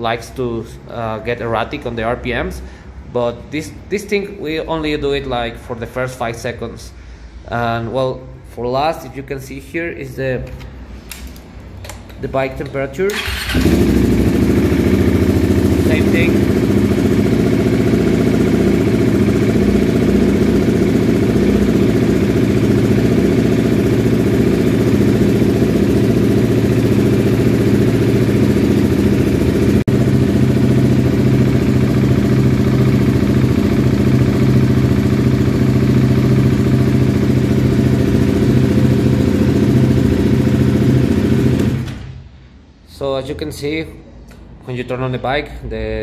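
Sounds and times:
motorcycle engine idling: 13.1 - 41.9.

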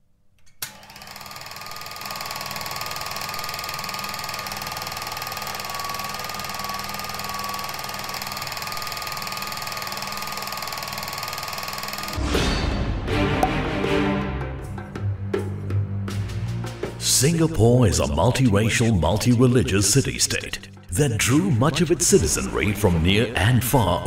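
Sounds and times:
film projector clatter: 0.6 - 12.2
motor hum: 0.6 - 12.3.

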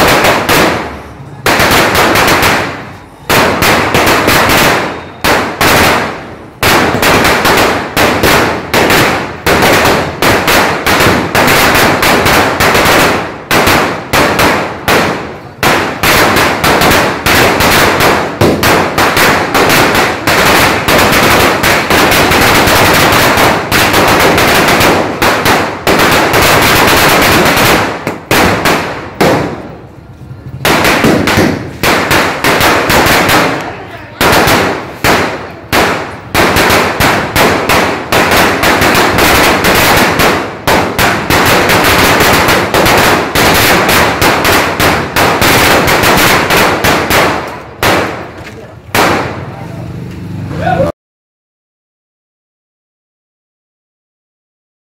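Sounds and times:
firecrackers bursting: 0.0 - 50.9.

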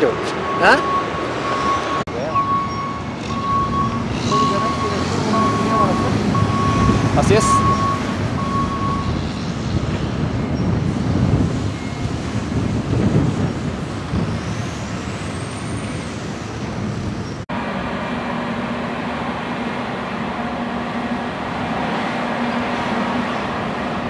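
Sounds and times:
dockside machinery rumble: 15.8 - 24.0.

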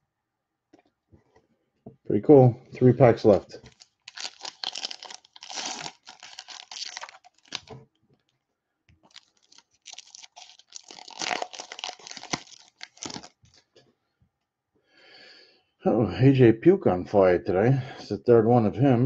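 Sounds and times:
wrapper crinkling and tearing: 3.3 - 7.8, 9.0 - 13.7.

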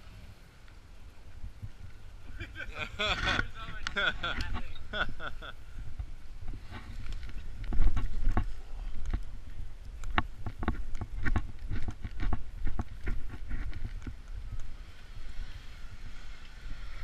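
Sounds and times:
low microphone rumble: 0.9 - 17.0
footsteps on snow and twigs: 5.9 - 14.9.

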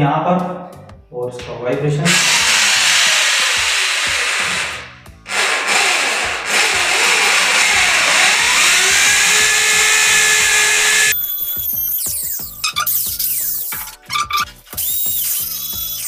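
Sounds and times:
hammer drill boring into wall: 2.1 - 11.2.

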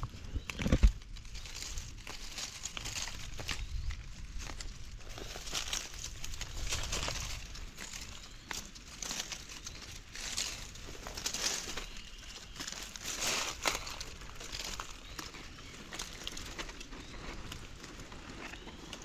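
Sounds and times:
dry leaves and twigs rustling: 0.0 - 19.0.

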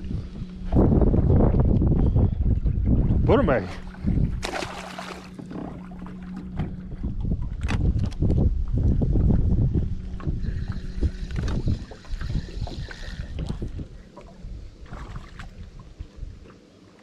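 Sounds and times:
wind buffeting microphone: 0.0 - 16.5
steady low hum: 0.0 - 16.8
water slapping against hull: 0.6 - 16.7
fishing reel clicking and rattling: 10.4 - 13.7.

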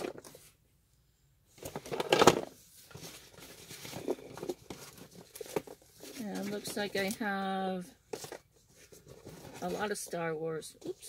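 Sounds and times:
cardboard boxes rummaged in packing peanuts: 1.7 - 7.4.

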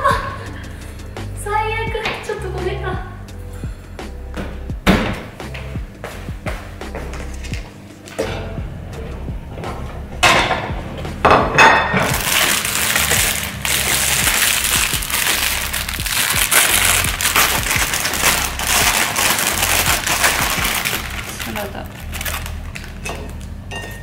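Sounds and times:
plastic bag crinkling: 12.0 - 23.4.

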